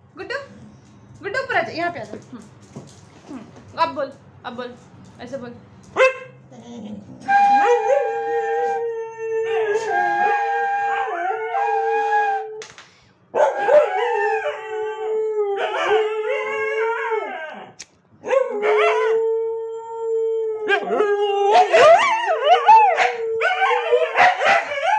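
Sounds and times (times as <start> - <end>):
dog howling: 6.6 - 12.5, 13.4 - 24.9
bamboo flute long notes: 7.2 - 8.6.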